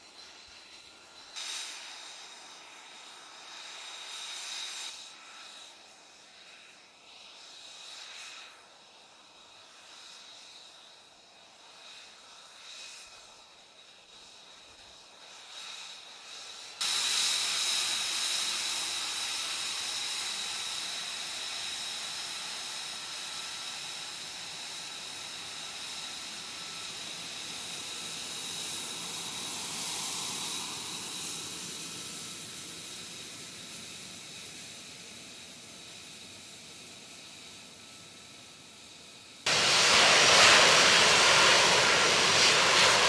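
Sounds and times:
jet engine whining: 0:16.8 - 0:43.0.

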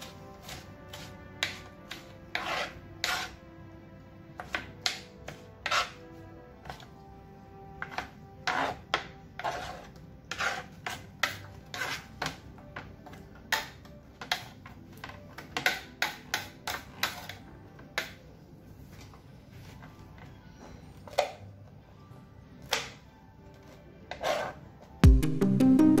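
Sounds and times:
soft background music: 0:00.0 - 0:26.0
knife chopping on plastic board: 0:04.4 - 0:06.0.

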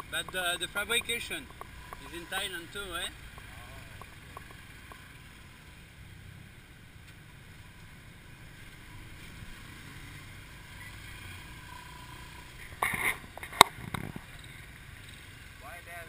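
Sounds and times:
motorcycle engine rumble: 0:00.0 - 0:16.0
road noise: 0:00.0 - 0:16.0
wind noise: 0:12.8 - 0:14.3.

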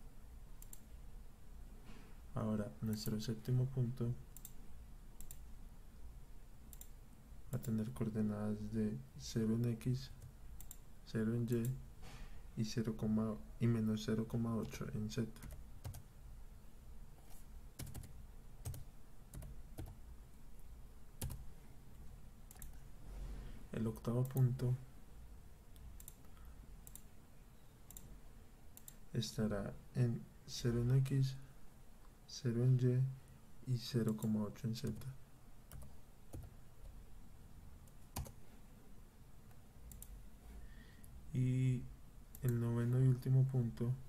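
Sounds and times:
faint background hiss: 0:00.0 - 0:44.0
keyboard and mouse clicks: 0:00.6 - 0:00.9, 0:02.8 - 0:03.3, 0:04.4 - 0:04.6, 0:05.2 - 0:05.4, 0:06.7 - 0:07.0, 0:10.2 - 0:10.8, 0:15.4 - 0:16.1, 0:17.2 - 0:20.0, 0:21.2 - 0:21.5, 0:22.5 - 0:22.8, 0:25.7 - 0:27.1, 0:27.9 - 0:28.1, 0:35.7 - 0:36.6, 0:37.8 - 0:38.4, 0:39.5 - 0:40.2
computer keyboard keystrokes: 0:15.4 - 0:16.1, 0:17.2 - 0:20.0, 0:21.2 - 0:21.4, 0:35.7 - 0:36.5, 0:37.9 - 0:38.4.

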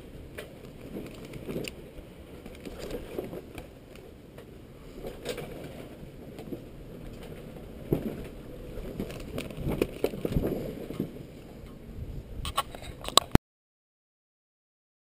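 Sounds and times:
low steady rumble: 0:00.0 - 0:13.0
paper rustling and crinkling: 0:02.4 - 0:04.0, 0:07.9 - 0:10.6.

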